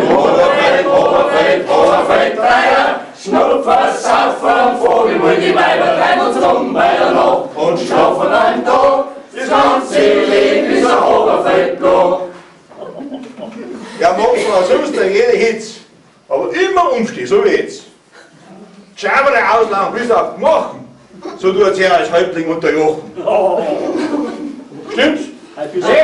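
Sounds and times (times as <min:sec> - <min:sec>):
group of voices chanting: 0:00.0 - 0:12.3.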